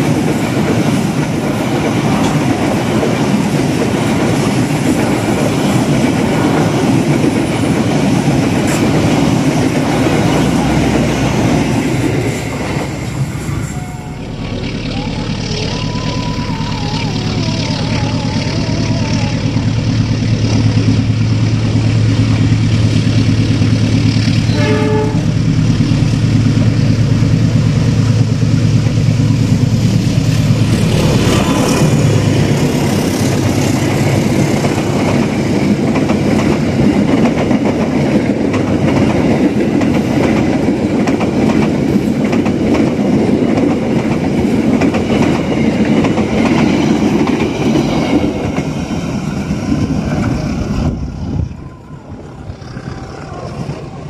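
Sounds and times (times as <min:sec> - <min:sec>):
locomotive engine droning: 0:00.0 - 0:54.0
train horn blast: 0:24.4 - 0:25.5.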